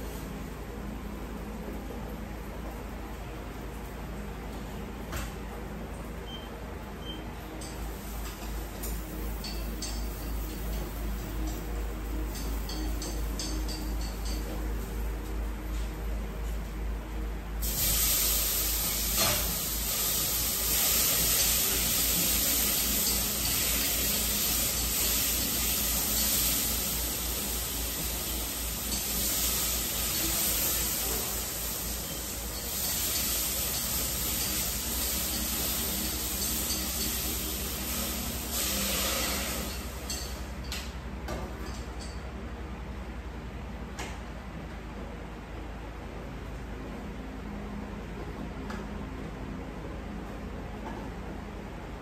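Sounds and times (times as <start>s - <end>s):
food sizzling in a pan: 17.6s - 40.6s.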